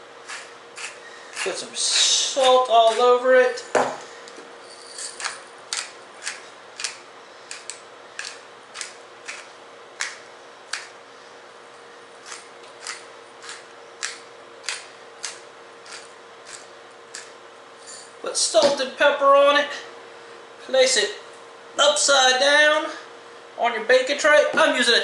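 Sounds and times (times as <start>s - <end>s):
salt grinder clicking: 0.3s - 1.5s, 5.2s - 10.9s, 12.2s - 17.3s.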